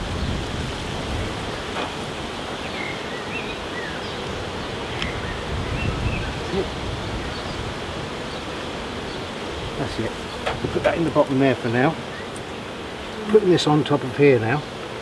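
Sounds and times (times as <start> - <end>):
wind rumbling on microphone: 0.0 - 11.3
bees buzzing: 0.0 - 15.0.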